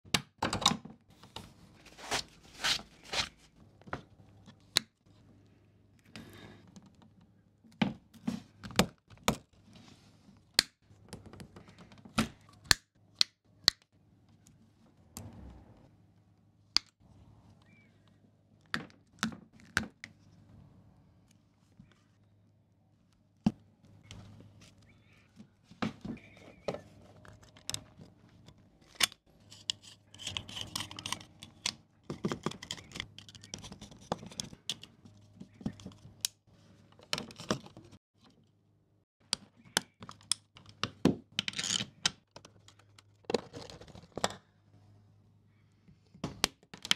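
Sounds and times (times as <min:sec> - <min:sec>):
cables being handled: 0:01.1 - 0:07.4, 0:23.0 - 0:38.4.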